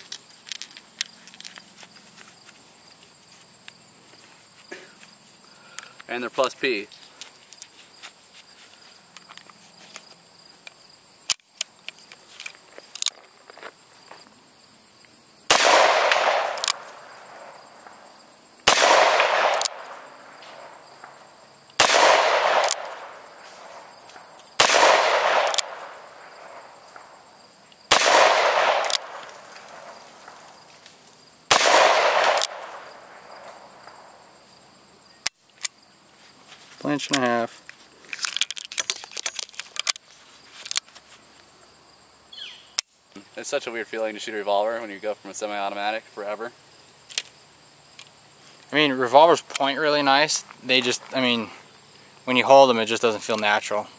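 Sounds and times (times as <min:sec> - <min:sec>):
revolver gunshots: 0:15.5 - 0:17.6, 0:18.6 - 0:21.2, 0:21.8 - 0:23.2, 0:24.6 - 0:27.1, 0:27.9 - 0:30.0, 0:31.5 - 0:33.3.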